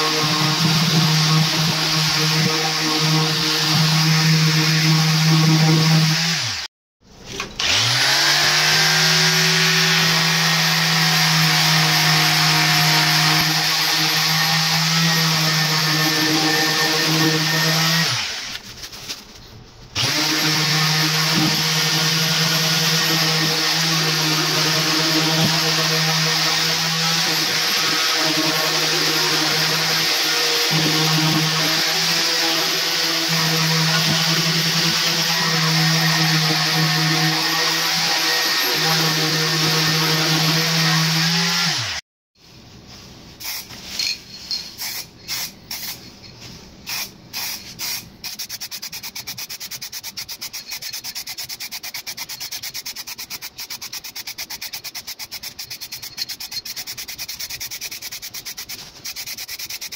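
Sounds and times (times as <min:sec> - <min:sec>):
electric sander running: 0:07.6 - 0:18.3
spray can rattling when shaken: 0:44.8 - 0:46.0, 0:46.9 - 0:59.9.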